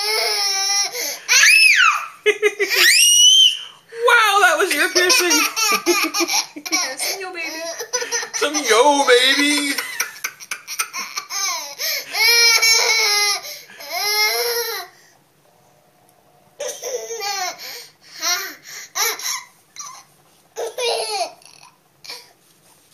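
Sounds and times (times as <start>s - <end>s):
toddler giggling: 4.7s - 14.8s.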